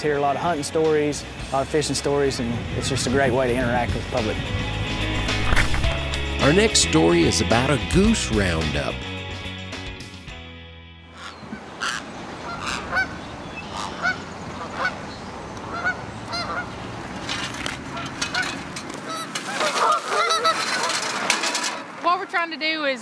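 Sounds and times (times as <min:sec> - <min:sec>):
geese honking: 0:11.2 - 0:15.0, 0:15.7 - 0:16.8, 0:17.9 - 0:21.0.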